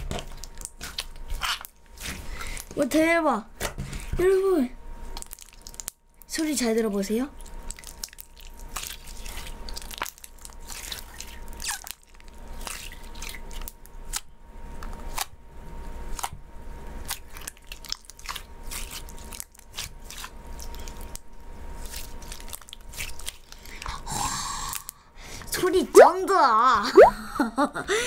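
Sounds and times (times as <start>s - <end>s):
slime squeezed crackling and popping: 0.1s - 2.1s, 5.1s - 6.6s, 7.4s - 15.3s, 17.0s - 23.9s.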